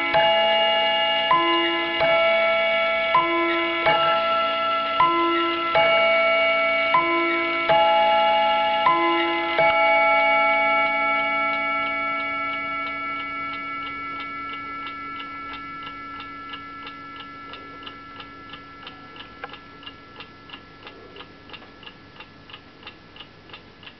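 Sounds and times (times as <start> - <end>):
clock chime on rods: 0.0 - 22.4
fast clock ticking: 8.9 - 23.9.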